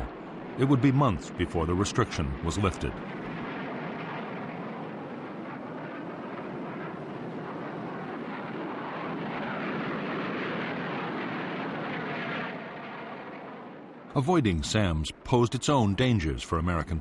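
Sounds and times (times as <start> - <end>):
jet engine rush: 0.0 - 17.0.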